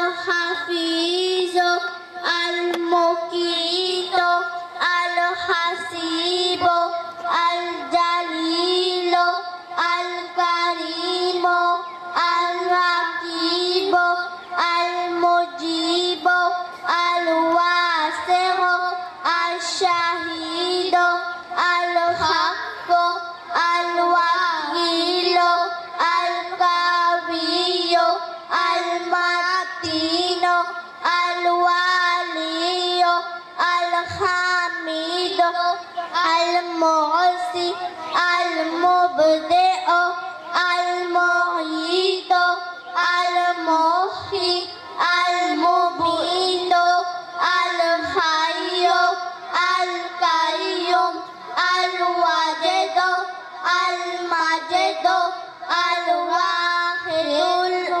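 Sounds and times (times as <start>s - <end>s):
person singing devotional song: 0.0s - 58.0s.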